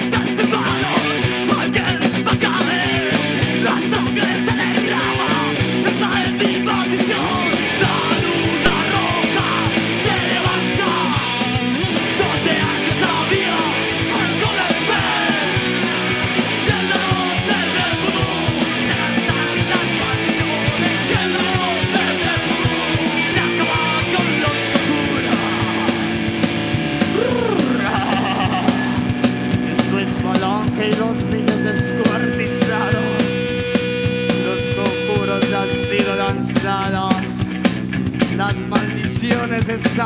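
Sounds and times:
drum kit: 0.0s - 40.0s
electric guitar: 0.0s - 40.0s
person shouting vocals: 27.1s - 29.2s.

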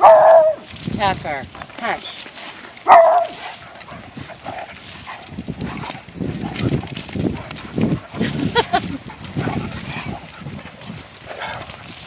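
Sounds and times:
dog barking: 0.0s - 0.6s, 2.8s - 3.5s
dogs growling: 1.7s - 12.0s.

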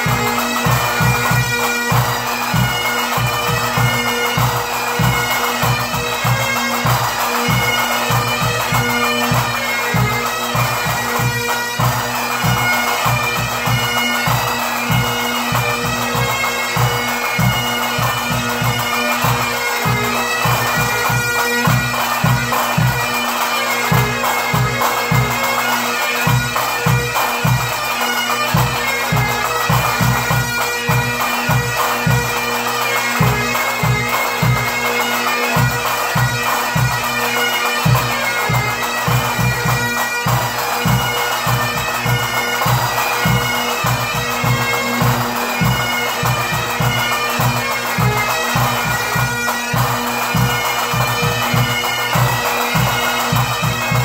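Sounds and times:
bagpipes playing melody with drones: 0.0s - 54.0s.

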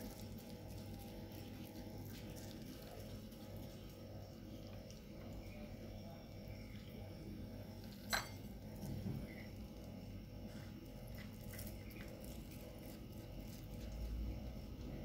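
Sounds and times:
cat eating and licking: 0.0s - 5.9s, 6.6s - 15.0s
glass dish clinking on tiled floor: 8.0s - 8.4s.

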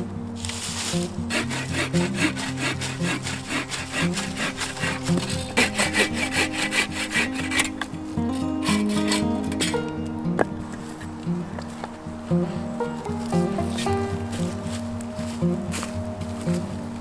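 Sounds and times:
background music: 0.0s - 17.0s
hand saw cutting wood: 0.5s - 9.8s.

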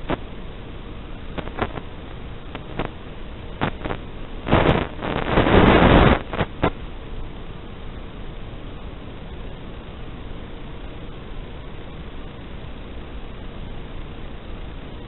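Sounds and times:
static crackles and bursts: 0.0s - 15.0s
video link static hiss: 0.0s - 15.0s.

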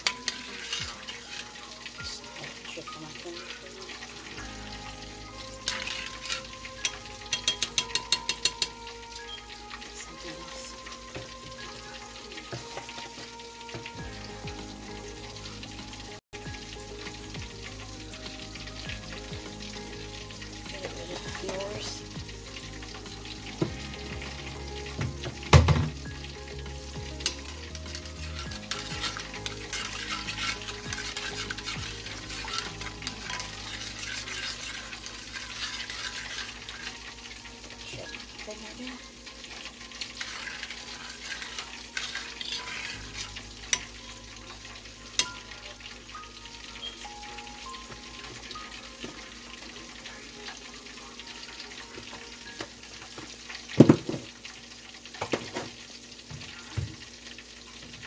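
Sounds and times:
spoon stirring thick sauce: 0.0s - 2.7s, 5.3s - 9.0s, 27.0s - 38.3s, 39.4s - 43.9s
steady sizzling hiss: 0.0s - 58.0s
spoon clinking against dish: 5.7s - 8.9s.

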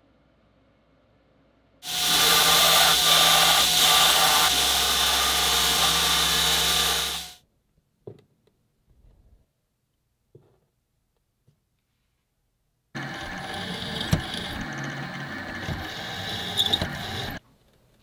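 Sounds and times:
belt grinder grinding metal: 1.8s - 7.4s, 13.0s - 17.4s.

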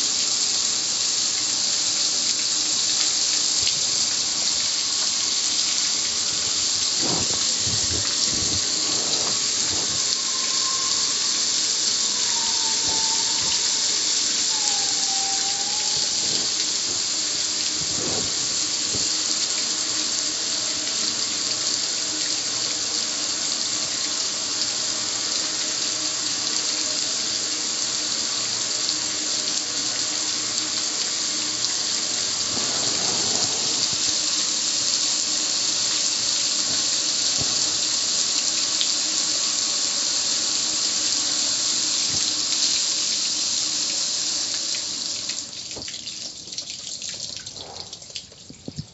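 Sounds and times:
hose spray hitting metal: 6.9s - 10.4s, 32.3s - 34.6s.

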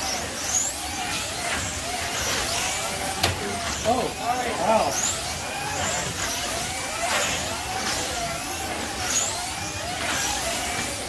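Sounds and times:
slot car motors whining: 0.0s - 11.0s.

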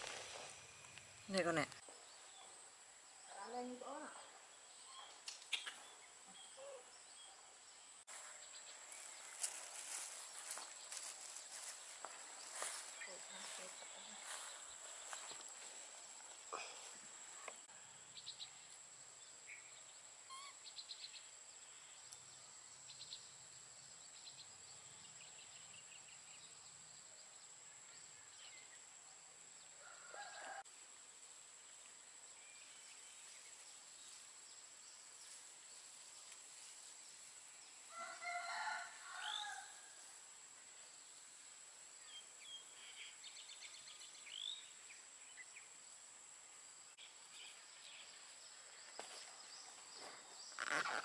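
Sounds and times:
bird chirps: 3.3s - 7.4s, 20.3s - 21.2s
distant rooster crowing: 29.8s - 30.7s, 37.9s - 40.0s.

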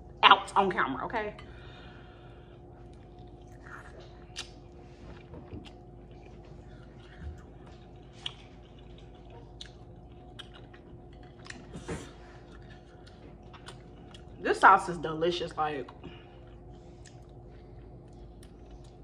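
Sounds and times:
person chewing with wet smacks: 2.8s - 14.4s, 15.9s - 19.0s.

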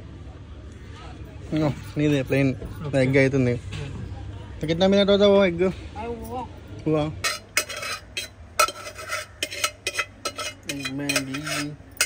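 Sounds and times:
utensils clinking against dishes: 7.2s - 12.0s.

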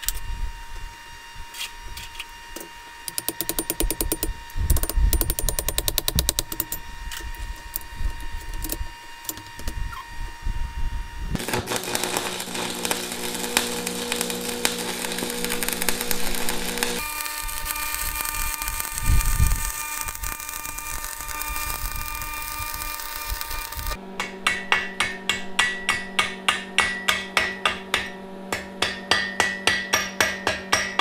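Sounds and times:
electrical hum: 0.0s - 26.8s
welding arc crackling and hissing: 11.3s - 24.0s.

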